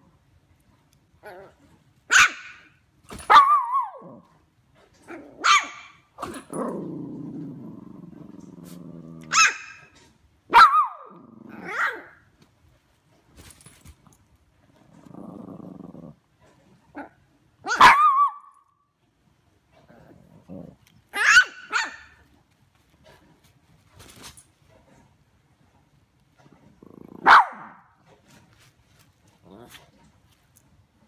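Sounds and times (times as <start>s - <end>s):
dog growling: 1.2s - 1.7s, 6.3s - 9.3s, 11.1s - 12.0s, 14.7s - 17.2s, 19.8s - 21.2s, 26.7s - 27.3s, 29.3s - 30.1s.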